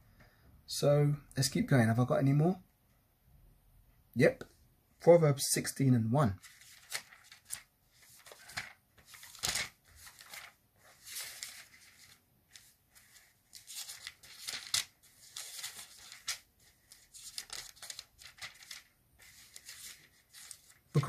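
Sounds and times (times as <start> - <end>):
thin pages being turned: 6.4 - 21.0.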